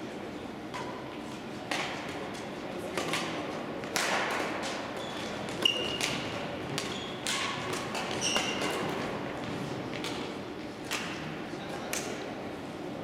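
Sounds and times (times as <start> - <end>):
rackets hitting shuttlecock: 1.7 - 11.3
shoes squeaking on floor: 5.0 - 6.2, 6.8 - 7.2, 8.1 - 8.9.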